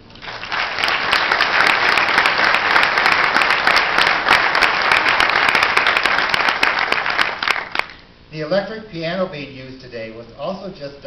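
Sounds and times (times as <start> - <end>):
audience applauding: 0.2 - 8.0.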